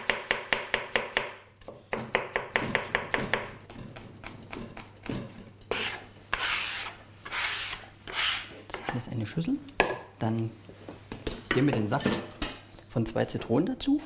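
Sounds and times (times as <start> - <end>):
knife chopping on plastic board: 0.0 - 4.9
knife scraping across board: 5.7 - 8.9.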